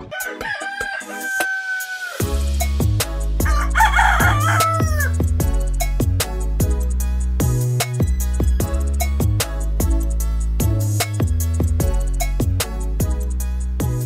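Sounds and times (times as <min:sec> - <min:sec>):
rooster crowing: 0:00.0 - 0:02.2, 0:03.4 - 0:05.2
music with heavy bass and drums: 0:00.0 - 0:14.0.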